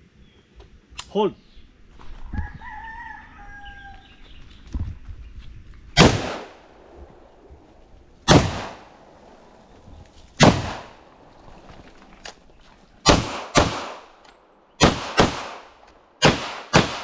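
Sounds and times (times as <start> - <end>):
rifle shots with echo: 6.0 - 7.0, 8.2 - 9.0, 10.4 - 11.0, 13.0 - 14.2, 14.8 - 17.0.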